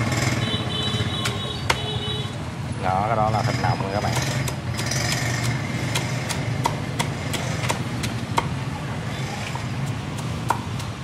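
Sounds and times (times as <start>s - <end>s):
cleaver chopping on a block: 4.0s - 8.6s, 9.8s - 11.0s.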